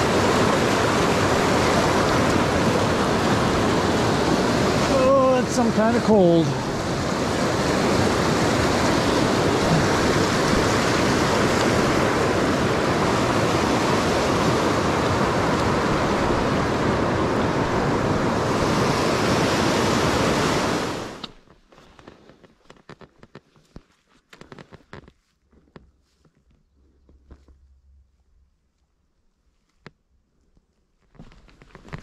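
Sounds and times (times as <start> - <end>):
river water rushing: 0.0 - 21.3.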